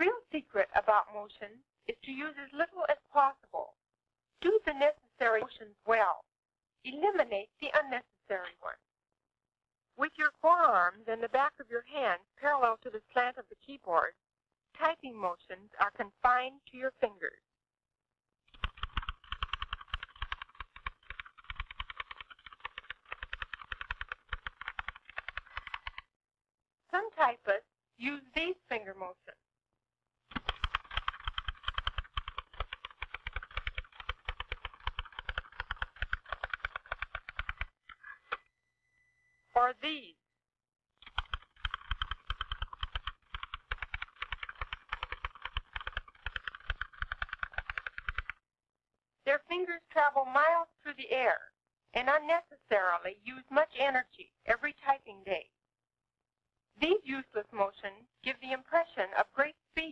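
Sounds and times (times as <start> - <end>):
manual typewriter typing: 18.5 - 26.0, 30.3 - 37.7, 41.0 - 48.4.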